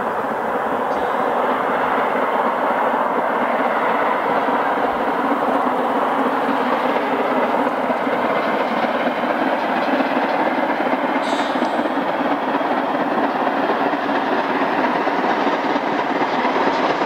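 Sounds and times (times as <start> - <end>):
steam locomotive working hard: 0.0 - 17.0.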